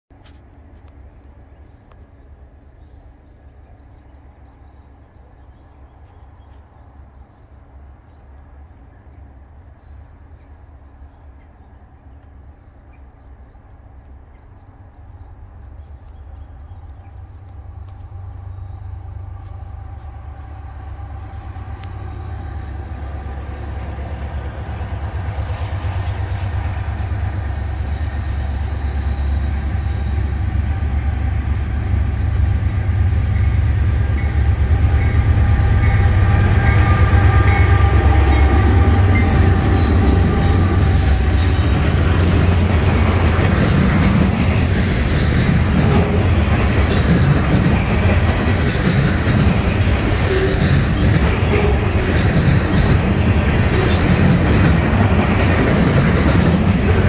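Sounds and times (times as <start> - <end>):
diesel locomotive rumble: 0.5 - 57.0
freight cars rattling: 37.8 - 57.0.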